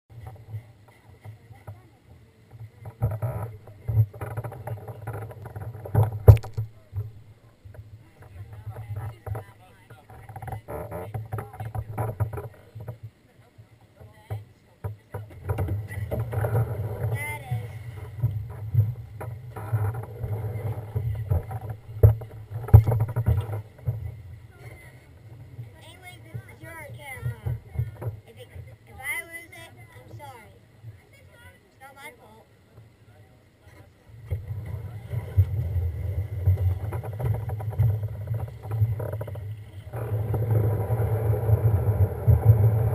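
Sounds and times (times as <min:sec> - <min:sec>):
sled knocking and rattling: 0:02.5 - 0:13.1, 0:14.0 - 0:24.8, 0:34.2 - 0:42.9
steady low rumble: 0:15.2 - 0:42.9.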